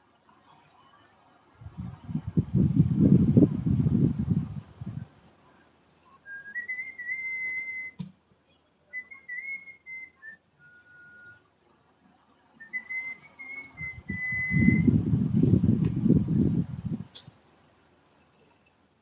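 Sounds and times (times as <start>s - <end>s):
woman whistling a tune: 6.2s - 8.0s, 8.9s - 11.4s, 12.6s - 14.9s.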